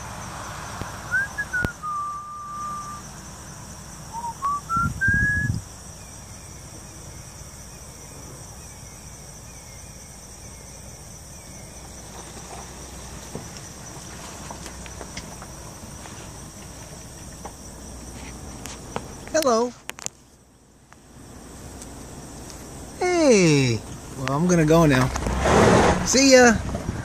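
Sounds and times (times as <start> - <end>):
insects droning: 0.0 - 27.0
person whistling: 1.1 - 3.0, 4.2 - 5.6.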